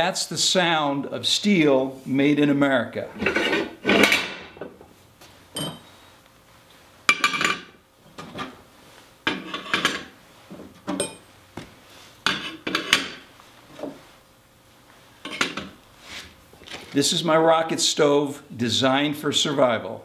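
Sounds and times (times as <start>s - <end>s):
metal scraping: 3.1s - 4.3s.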